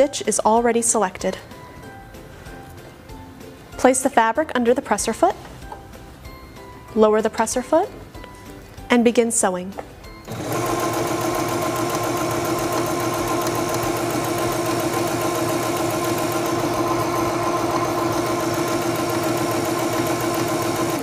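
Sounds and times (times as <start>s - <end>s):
sewing machine running: 10.3s - 21.0s.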